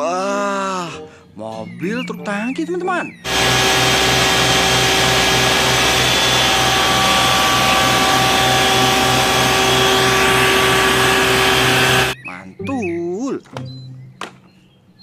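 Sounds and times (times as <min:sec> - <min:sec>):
truck engine and pump drone: 0:03.3 - 0:12.2
water jet hissing: 0:03.3 - 0:12.2.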